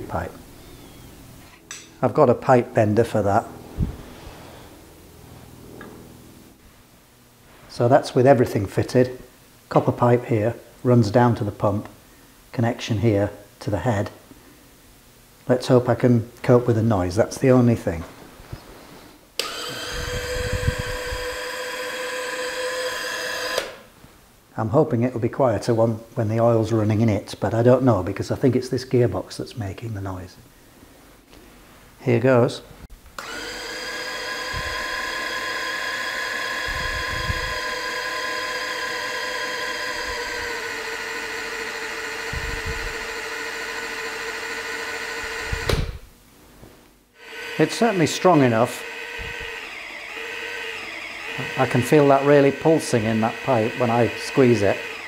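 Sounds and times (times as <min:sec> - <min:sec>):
small electric pump motor whining: 0:19.4 - 0:23.9, 0:33.2 - 0:45.9, 0:47.2 - 0:55.0.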